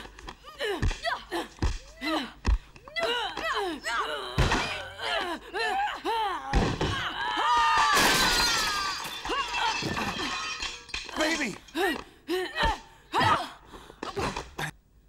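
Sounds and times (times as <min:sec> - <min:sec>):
women grunting and crying out: 0:00.4 - 0:14.7
window glass shattering: 0:07.9 - 0:11.5.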